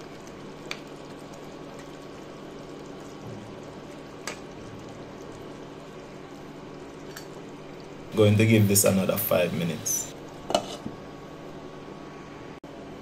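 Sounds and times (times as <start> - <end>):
curry simmering in a pot: 0.0 - 8.1.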